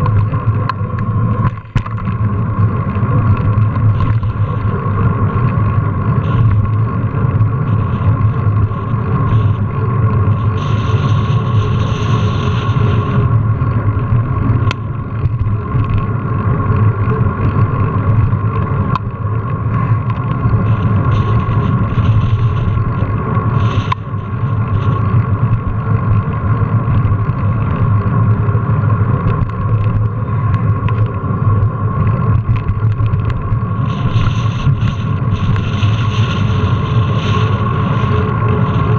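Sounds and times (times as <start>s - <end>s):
bike tyres rolling on pavement: 0.0s - 38.9s
wind noise: 0.0s - 38.9s.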